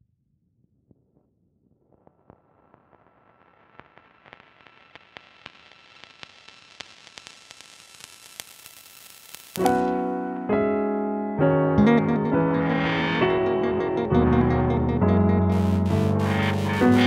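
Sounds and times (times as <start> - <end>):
record crackle and hiss: 0.9 - 10.2, 15.5 - 17.0
piano chords: 9.6 - 17.0.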